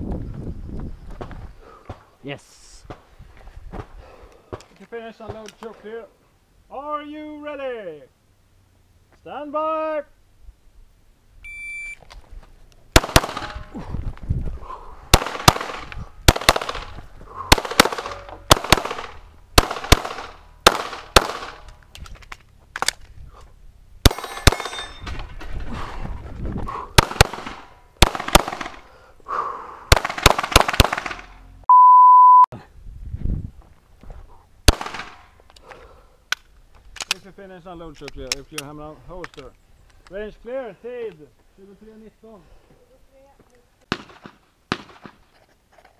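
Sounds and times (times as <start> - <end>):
loud steady beep: 11.4 - 12.0, 31.7 - 32.5
shot timer beep: 11.4 - 12.0, 31.7 - 32.5
pistol shots: 13.0 - 13.7, 15.1 - 21.8, 27.0 - 28.8, 29.9 - 31.3, 34.7 - 35.2, 43.9 - 45.2.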